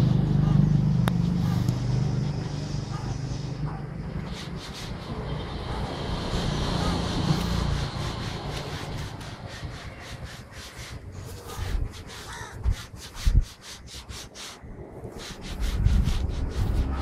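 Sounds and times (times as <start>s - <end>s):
crows cawing: 12.1s - 12.9s.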